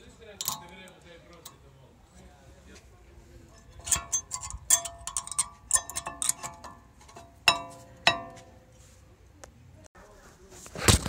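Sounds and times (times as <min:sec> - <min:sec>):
brake pad clinking into bracket: 0:00.4 - 0:00.8.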